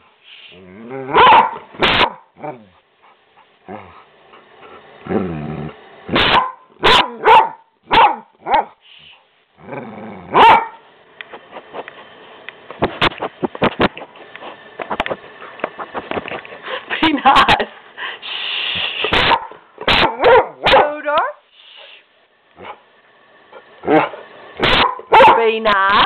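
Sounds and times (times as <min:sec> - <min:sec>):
dog grumbling moans: 0:00.6 - 0:01.2, 0:03.6 - 0:04.1, 0:04.7 - 0:05.9, 0:09.6 - 0:10.4
dog barking: 0:01.1 - 0:02.6, 0:06.1 - 0:08.8, 0:10.3 - 0:10.8, 0:19.1 - 0:21.4, 0:23.8 - 0:25.6.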